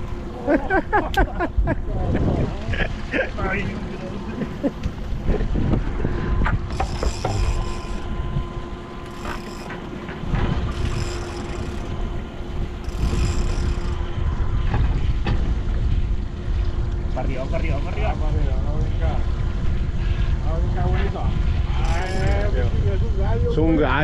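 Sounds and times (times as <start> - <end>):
wind rumbling on microphone: 0.0 - 24.0
outboard engines idling: 6.6 - 14.2, 19.9 - 23.4
fishing reel being wound: 6.7 - 8.2, 9.0 - 9.9, 10.7 - 11.9, 12.8 - 14.0, 21.7 - 22.6.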